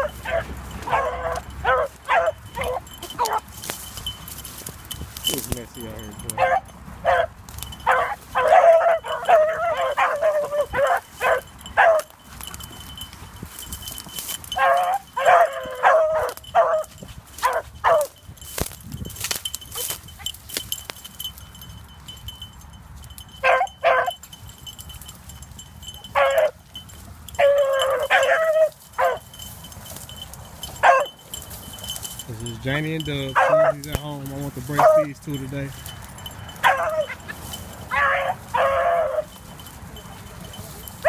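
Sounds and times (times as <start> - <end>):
dogs yipping barks: 0.0 - 41.0.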